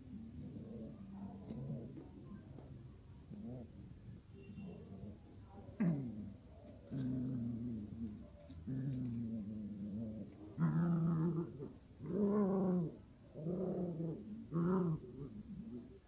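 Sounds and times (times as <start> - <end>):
puppies growling: 5.8 - 16.0.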